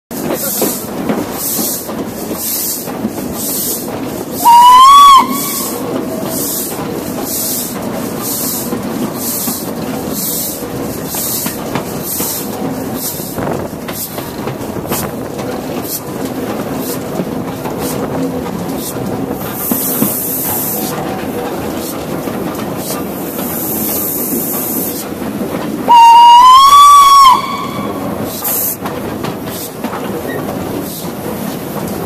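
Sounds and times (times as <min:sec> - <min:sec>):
train running noise: 0:00.1 - 0:32.0
steam exhaust chuffs: 0:00.3 - 0:16.1, 0:18.7 - 0:31.2
steam locomotive whistle blast: 0:04.4 - 0:06.5, 0:25.9 - 0:28.7.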